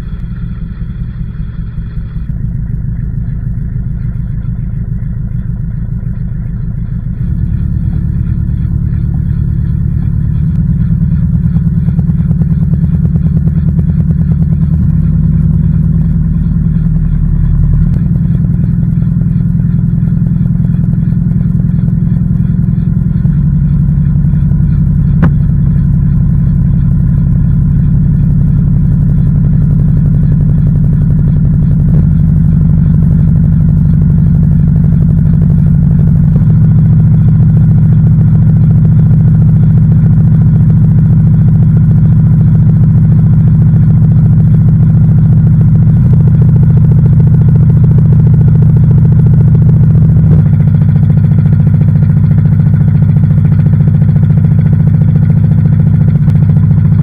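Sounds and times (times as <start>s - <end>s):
washing machine motor hum: 0.0s - 57.0s.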